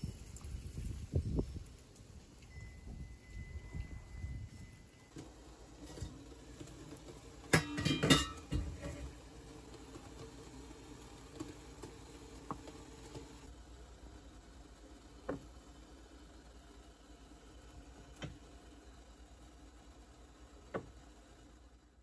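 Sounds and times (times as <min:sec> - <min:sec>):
metal pot clanking: 0:05.8 - 0:09.2.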